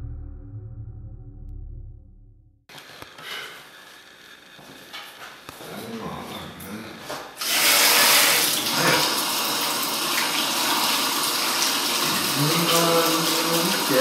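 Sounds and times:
water running into basin: 7.4 - 14.0.

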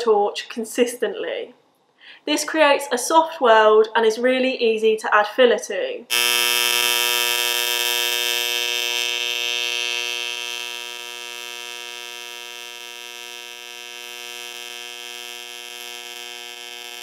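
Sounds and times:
welding arc buzzing: 6.1 - 17.0.

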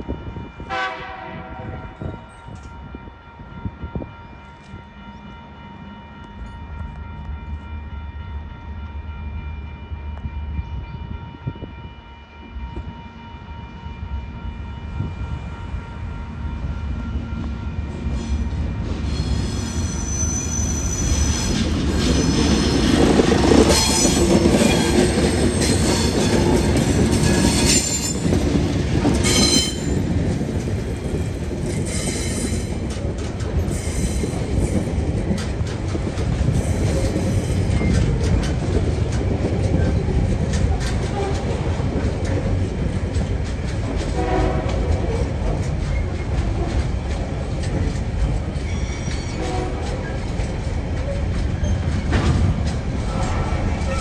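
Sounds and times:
diesel locomotives passing: 0.0 - 54.0
wagon wheels clattering and squealing: 45.0 - 54.0.

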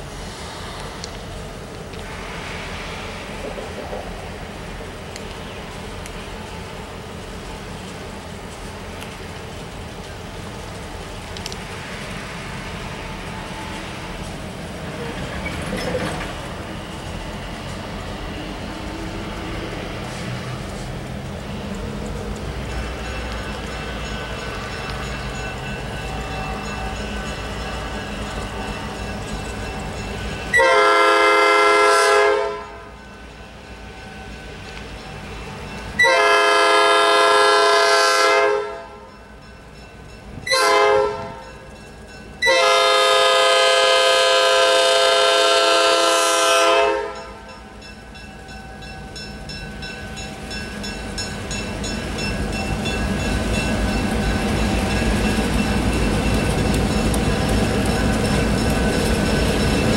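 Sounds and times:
diesel locomotive rumble: 0.0 - 59.9
locomotive air horn blasts: 30.5 - 32.9, 36.0 - 39.0, 40.5 - 41.4, 42.4 - 47.4.

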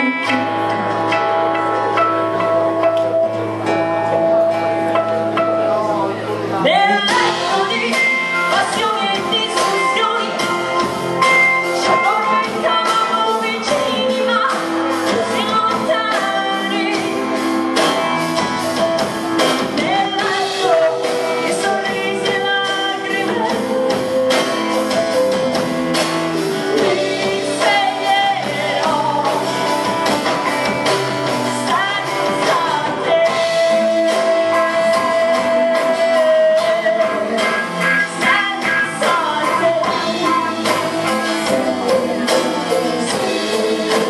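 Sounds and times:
live rock band playing: 0.0 - 44.0
woman singing: 6.6 - 18.0, 19.4 - 25.6, 26.5 - 30.5, 31.2 - 44.0.

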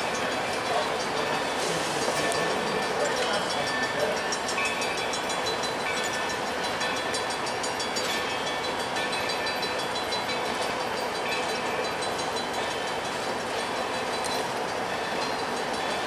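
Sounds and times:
steel wheels rumbling on rails: 0.0 - 16.0.

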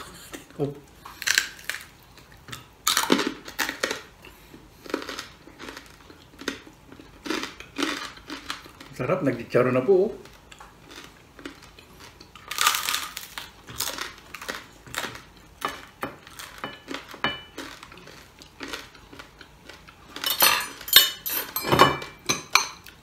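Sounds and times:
chewing: 0.1 - 9.0, 10.2 - 20.9
crunchy bite: 12.4 - 15.3
plate clinking: 20.2 - 22.9.

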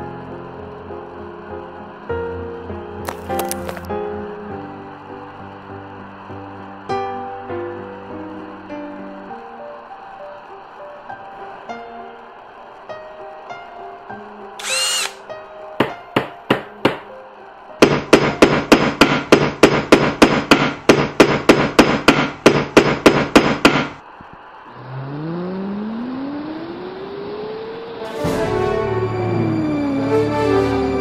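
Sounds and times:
rising machine whine: 4.4 - 15.4, 24.0 - 31.0
fast hammer-like knocks: 15.8 - 17.1, 17.8 - 24.0.

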